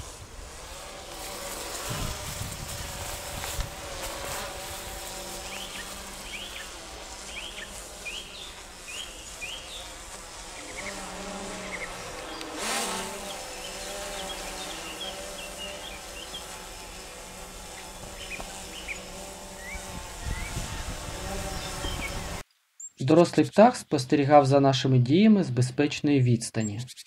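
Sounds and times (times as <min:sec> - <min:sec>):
drone rotors buzzing: 0:00.0 - 0:22.4
small birds chirping: 0:05.0 - 0:24.2.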